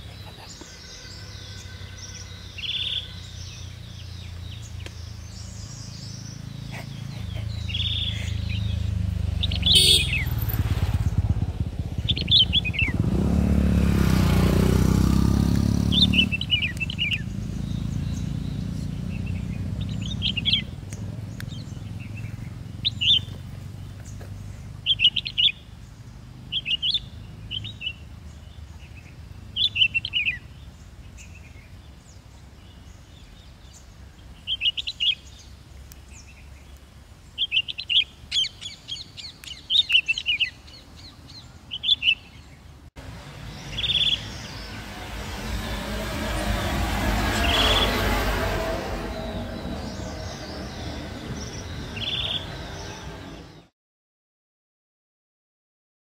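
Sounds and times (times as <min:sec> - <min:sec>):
low engine rumble: 0:00.0 - 0:34.5, 0:43.0 - 0:53.7
bird calling short phrases: 0:09.5 - 0:10.4.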